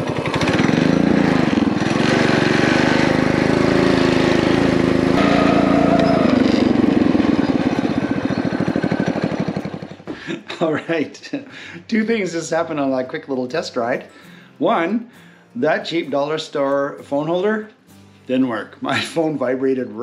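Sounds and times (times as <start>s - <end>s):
mini bike engine revving: 0.0s - 10.1s.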